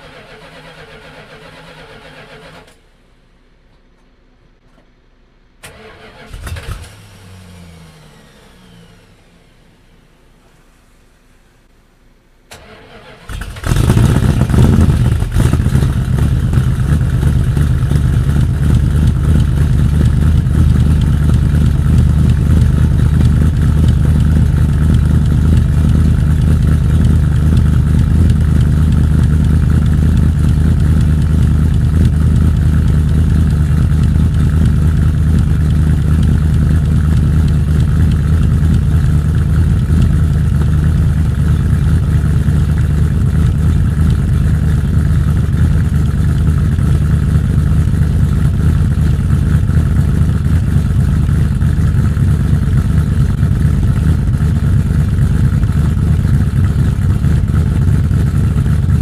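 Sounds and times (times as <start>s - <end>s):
engine cranking and starting: 0.0s - 2.8s, 5.6s - 9.8s, 12.5s - 27.0s
engine idling: 0.0s - 3.5s, 5.6s - 59.0s.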